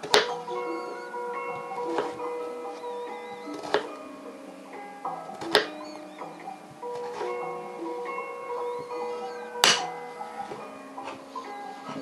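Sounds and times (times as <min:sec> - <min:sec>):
background music with held notes: 0:00.0 - 0:12.0.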